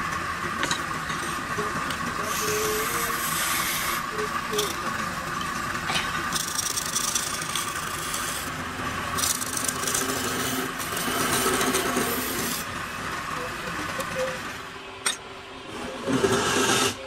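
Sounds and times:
wood lathe humming: 0.0 - 14.8
chisel scraping spinning wood: 0.5 - 5.0, 6.1 - 12.7, 16.0 - 17.0.

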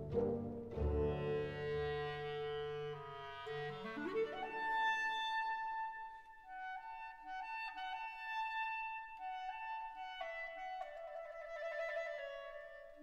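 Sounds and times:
slow instrumental music: 0.0 - 4.0.

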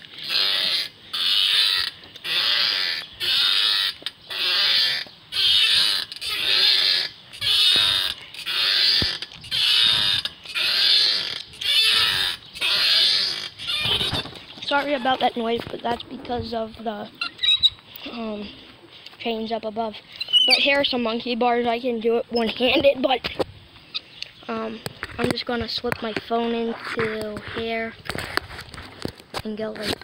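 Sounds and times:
swing chains squeaking: 0.0 - 18.2, 20.1 - 21.1.

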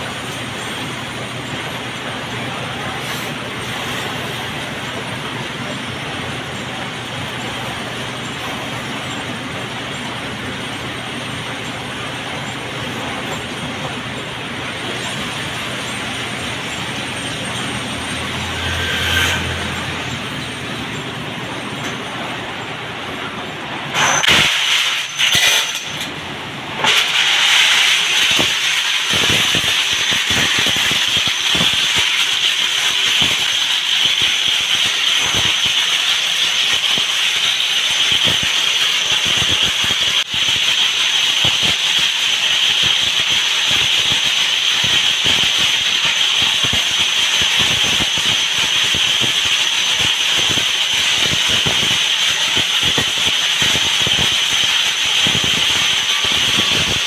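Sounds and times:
metal pieces rattling in a drum: 24.1 - 26.1.

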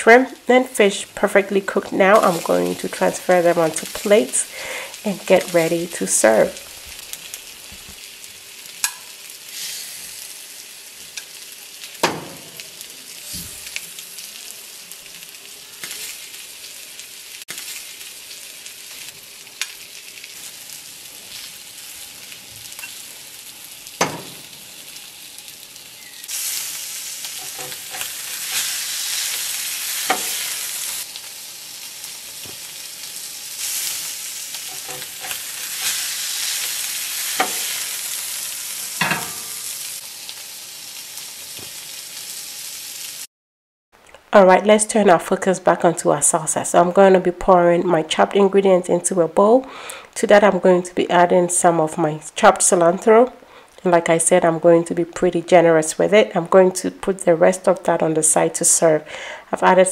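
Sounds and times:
seafood sizzling in a pan: 1.6 - 43.3
utensil clinking on pan: 39.0 - 39.6.

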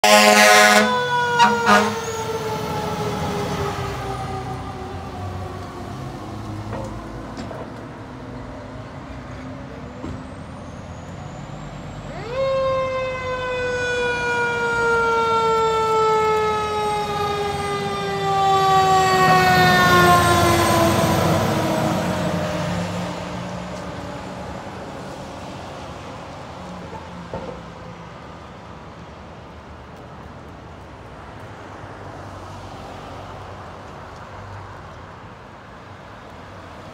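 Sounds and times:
fire truck siren wailing: 0.0 - 7.2, 10.0 - 25.5
street traffic: 0.0 - 36.9
truck engines passing: 0.0 - 36.9.

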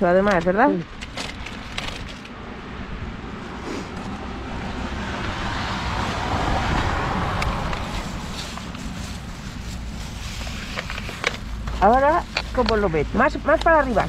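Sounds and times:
vehicle passing by: 2.4 - 10.3.

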